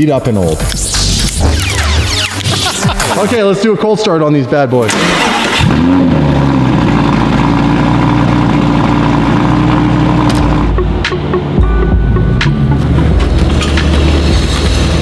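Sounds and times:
sports car engine starting and idling: 4.8s - 15.0s.

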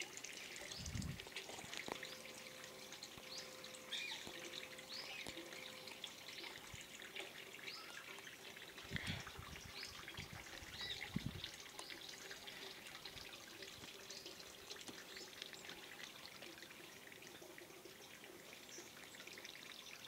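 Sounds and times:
birds chirping: 1.9s - 7.0s.

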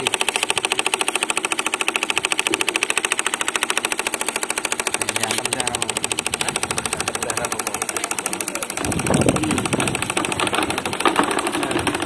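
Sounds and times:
miniature engine running: 0.0s - 12.0s.

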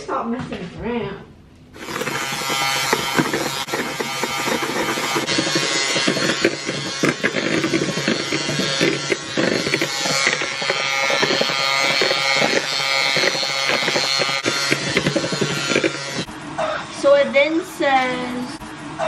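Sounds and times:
electric hand mixer running: 1.8s - 16.4s.

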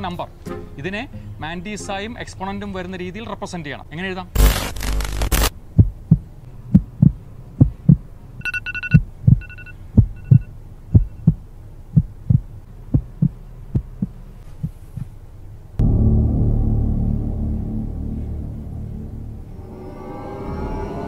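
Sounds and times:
heartbeat thumping: 5.7s - 15.2s
short electronic beeps: 8.4s - 11.3s.

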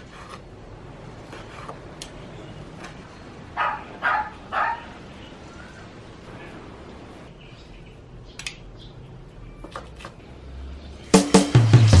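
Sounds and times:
dog barking: 3.6s - 5.0s.

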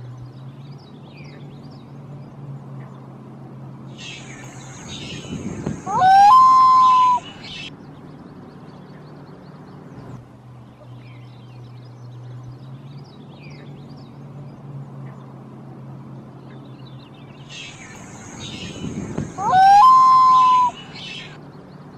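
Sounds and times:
small birds chirping: 3.9s - 10.2s, 16.4s - 21.9s
loon call: 5.9s - 7.5s, 19.3s - 21.4s.

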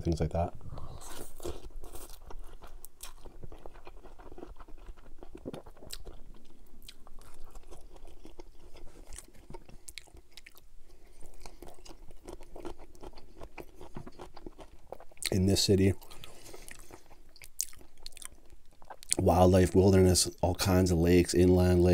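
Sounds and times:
food crunch: 1.0s - 15.4s
chewing with wet mouth clicks: 1.4s - 10.6s, 11.2s - 15.4s, 16.0s - 19.2s.

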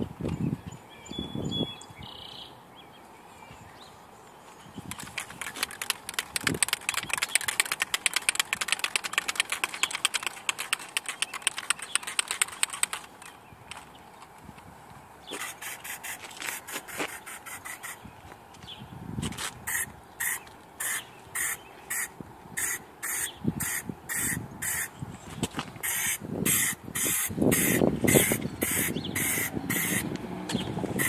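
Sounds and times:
aerosol can shaken rattling: 4.9s - 13.8s, 15.4s - 18.0s, 19.7s - 22.0s, 25.8s - 30.0s.

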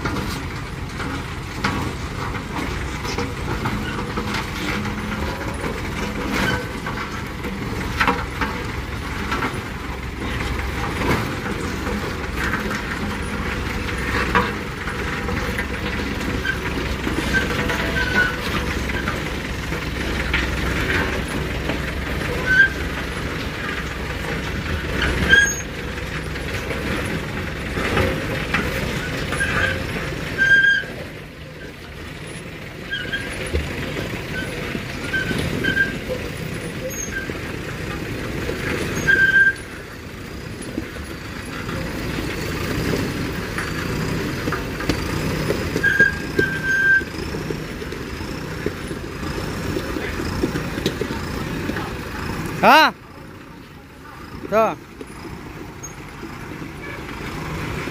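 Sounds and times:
diesel engine running: 0.0s - 57.9s
short high-pitched squeals: 38.9s - 39.7s, 45.8s - 47.1s.

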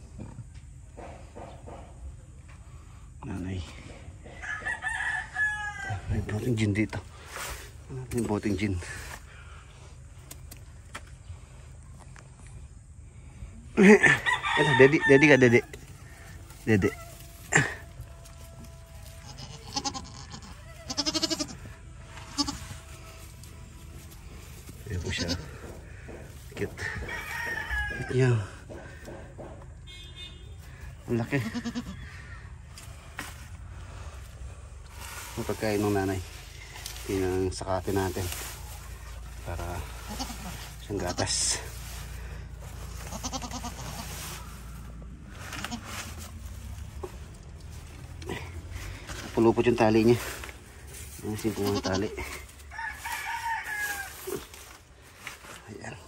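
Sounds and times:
goats bleating: 16.7s - 24.0s, 24.8s - 26.0s, 31.2s - 32.2s, 39.6s - 41.7s, 42.8s - 44.4s, 51.3s - 52.5s
soft rustling and handling noise: 21.6s - 28.0s, 32.7s - 56.0s.

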